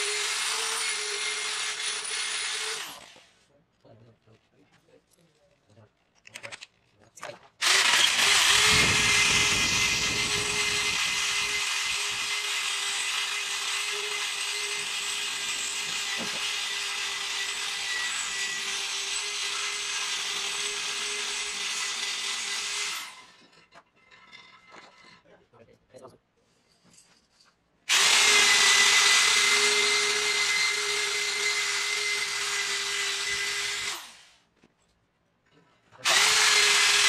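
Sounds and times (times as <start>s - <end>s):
electric drill grinding through metal: 0.0s - 3.4s, 7.6s - 23.5s, 27.9s - 34.4s, 36.0s - 37.0s.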